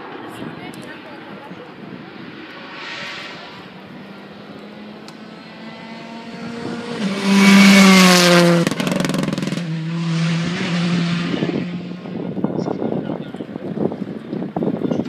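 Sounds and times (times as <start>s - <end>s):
rally car engine passing by: 1.4s - 12.4s.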